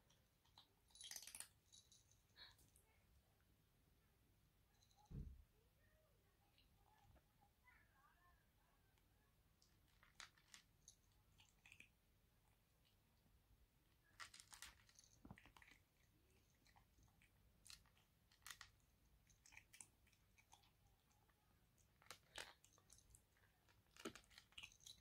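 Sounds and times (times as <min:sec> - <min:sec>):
kitten crunching kibble: 0:09.6 - 0:13.3, 0:13.9 - 0:25.0.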